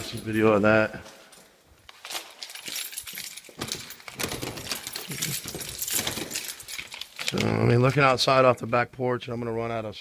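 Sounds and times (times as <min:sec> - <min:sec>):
footsteps: 0:00.0 - 0:06.9
door clicks and metallic rattles: 0:01.9 - 0:07.4.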